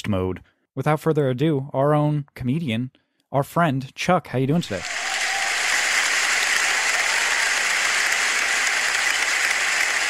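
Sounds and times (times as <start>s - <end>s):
audience applause: 4.6s - 10.0s.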